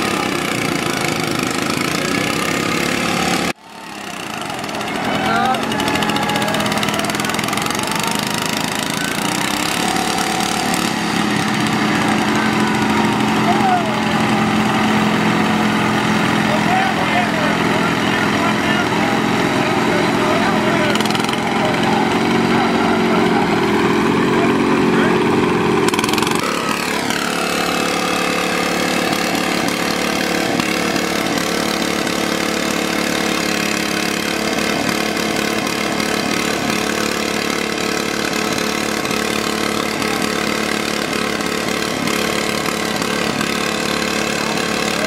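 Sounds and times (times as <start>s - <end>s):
lawn mower engines running: 0.0s - 45.0s
people talking: 3.8s - 10.8s, 11.4s - 25.4s, 39.8s - 40.5s.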